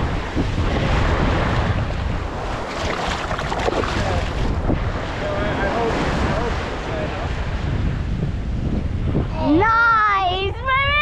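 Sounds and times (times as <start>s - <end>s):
water washing: 0.0s - 6.9s
wind rumbling on microphone: 0.0s - 11.0s.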